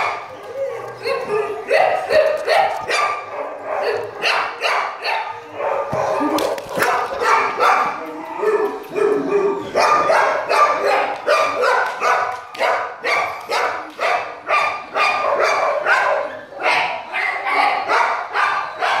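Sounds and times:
dog barking: 1.0 - 8.0, 9.0 - 19.0.

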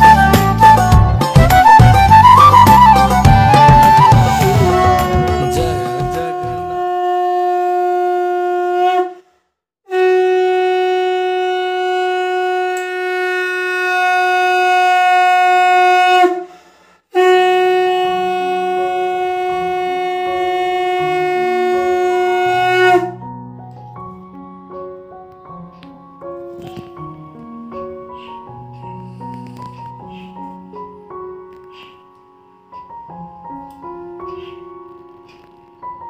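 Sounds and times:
soft keyboard music: 0.0 - 7.0, 17.5 - 36.0
conch shell blasts: 2.2 - 9.2, 9.9 - 16.5, 17.2 - 23.2.

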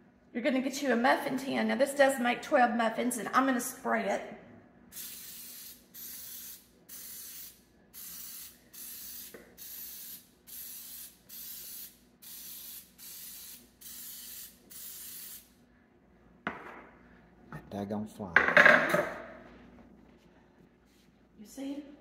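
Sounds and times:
cooking spray hissing squirts: 4.9 - 15.5.

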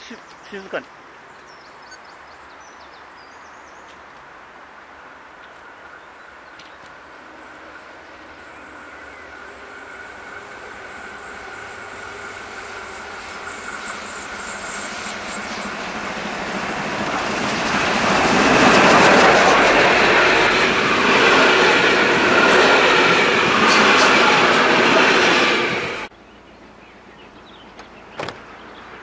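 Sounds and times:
train rumble: 3.9 - 29.0
steam locomotive hauling train: 4.5 - 27.4.

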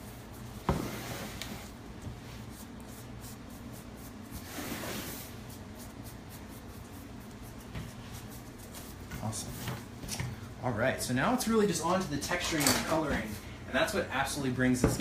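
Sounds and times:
brushing strokes on fondant: 0.0 - 9.8.

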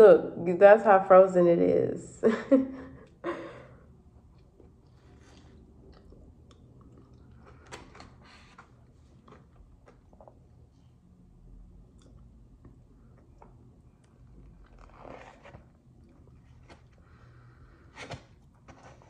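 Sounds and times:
chewing frozen ice cream: 4.1 - 10.8.

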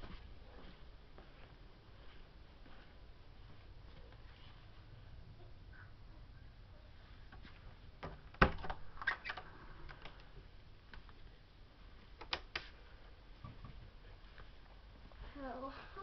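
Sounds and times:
low hiss: 0.0 - 16.0
sharp clicks and knocks: 12.2 - 12.7.

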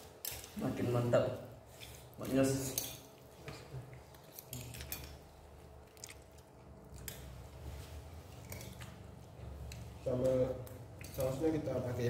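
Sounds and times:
person chewing: 3.9 - 7.4, 8.3 - 10.0.

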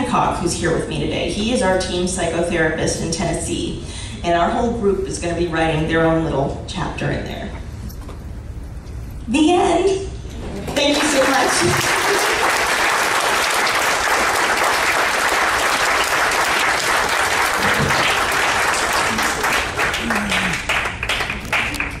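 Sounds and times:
audience applauding: 10.7 - 22.0.

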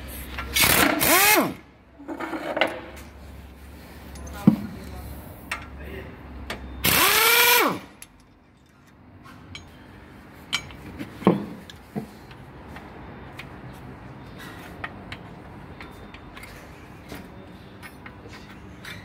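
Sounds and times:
metal tools clicking and knocking: 8.0 - 9.8, 10.5 - 10.8.

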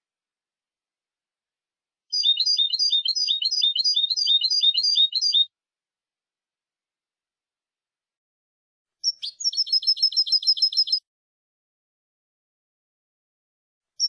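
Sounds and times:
finch twittering song: 2.1 - 5.5, 9.0 - 11.0.

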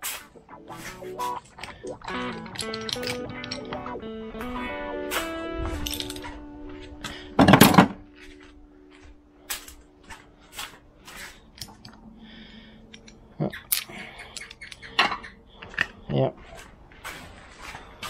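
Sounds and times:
small metal parts clinking: 1.5 - 3.8, 5.8 - 6.3, 11.6 - 12.0, 12.9 - 16.0
metal tools clattering into plastic tub: 2.2 - 3.7, 7.4 - 8.0.

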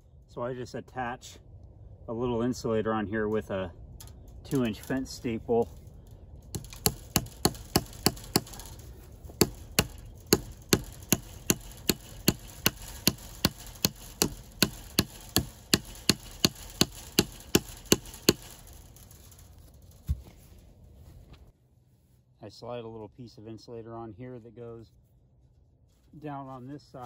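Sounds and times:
hammer striking fence staple: 6.5 - 19.2.

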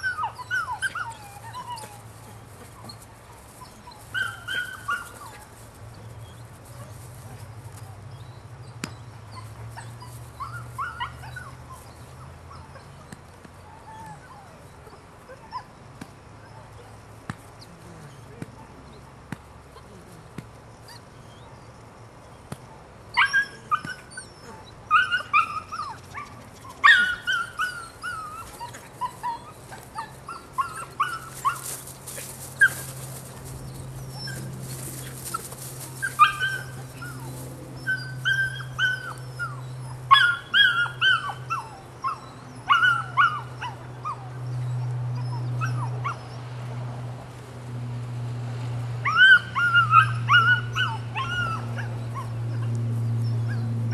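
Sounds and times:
puppy whining and yelping: 0.0 - 5.4, 9.0 - 15.7, 23.1 - 31.8, 32.6 - 46.4, 49.0 - 53.6.

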